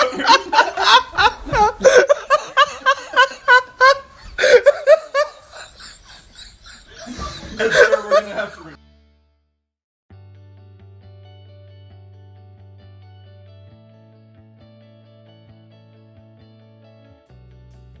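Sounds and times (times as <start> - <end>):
loud pulsing laughter: 0.0 - 8.8.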